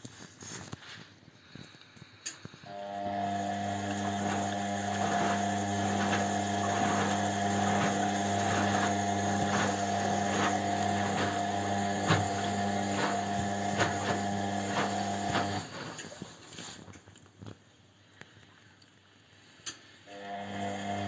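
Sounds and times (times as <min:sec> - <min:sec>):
washing machine humming: 0:02.7 - 0:16.2, 0:20.1 - 0:21.0.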